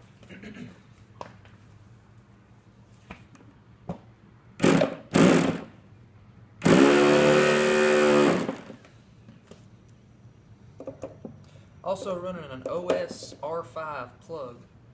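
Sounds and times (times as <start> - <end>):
electric starter spinning engine: 4.6 - 5.7, 6.6 - 8.8.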